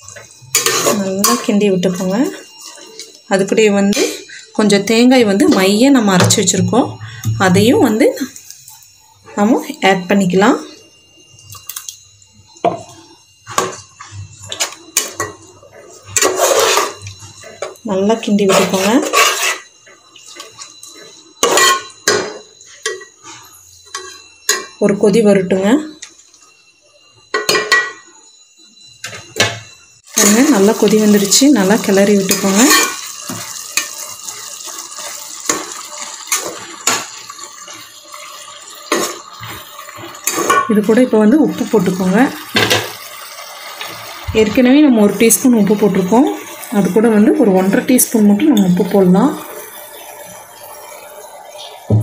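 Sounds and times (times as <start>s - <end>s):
boiling liquid sloshing in pot: 30.0s - 52.0s.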